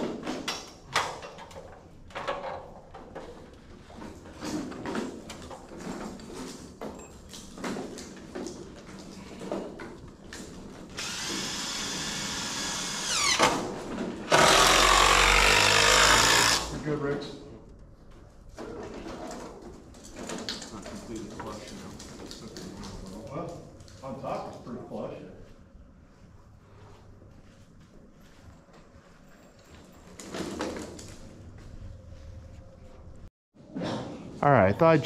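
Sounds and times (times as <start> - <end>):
impact driver driving screw: 11.0 - 13.5, 14.3 - 16.8.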